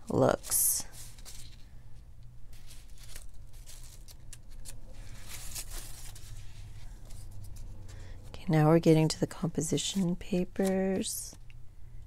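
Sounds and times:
low steady hum: 0.0 - 12.0
paper rustling: 0.1 - 8.1.

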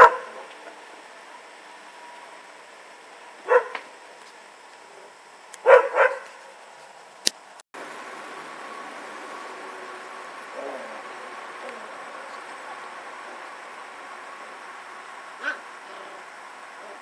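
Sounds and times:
dog barking: 0.0 - 0.5, 3.4 - 3.8, 5.6 - 6.3.

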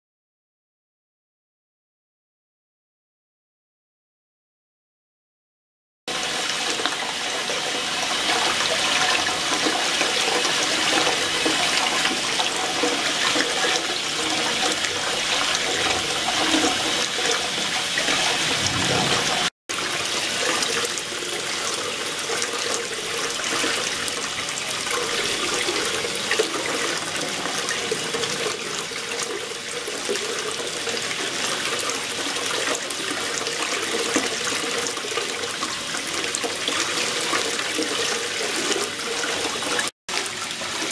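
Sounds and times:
water churning and rushing: 6.1 - 40.9.

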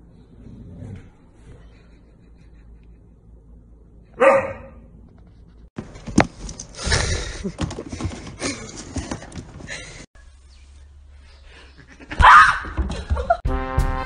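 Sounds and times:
dog barking: 4.2 - 4.9, 12.2 - 12.7
rustling and knocking: 7.4 - 10.0.

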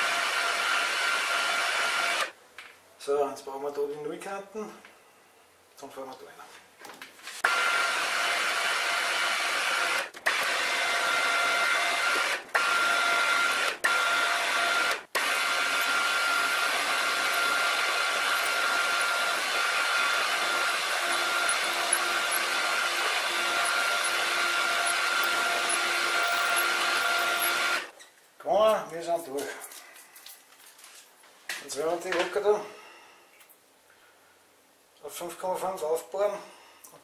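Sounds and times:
milling machine drilling aluminium: 0.0 - 2.3, 7.5 - 27.9.

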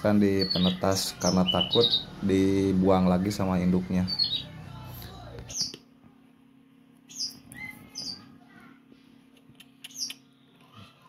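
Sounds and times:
nestlings begging chirps: 0.1 - 4.8, 5.5 - 5.8, 7.1 - 8.3, 9.9 - 10.3.

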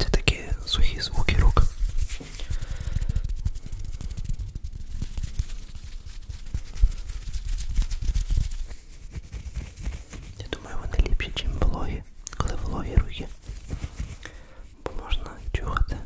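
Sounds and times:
fingers rubbing near microphone: 0.0 - 16.0
fingers touching microphone grille: 0.8 - 16.0.

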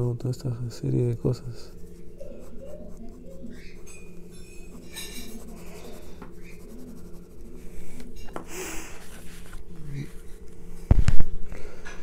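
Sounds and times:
pencil scratching on paper: 1.6 - 8.2.

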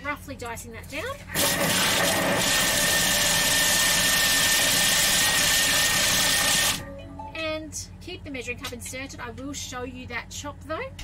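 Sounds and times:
food processor blades whirring: 1.4 - 6.8.

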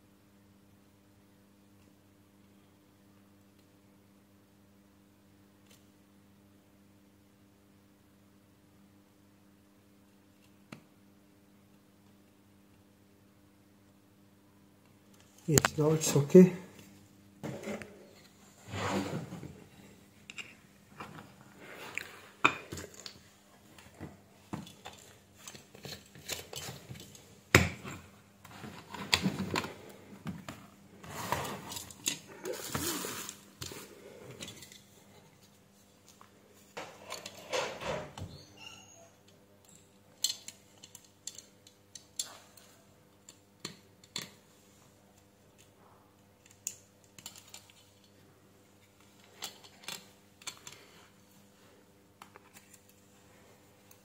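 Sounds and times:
faint steady hum: 0.0 - 54.0
small tools clicking and tapping: 39.3 - 44.4, 46.4 - 48.2.

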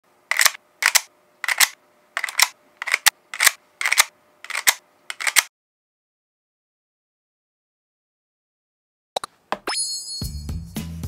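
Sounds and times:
sharp mechanical double clicks: 0.3 - 5.5.

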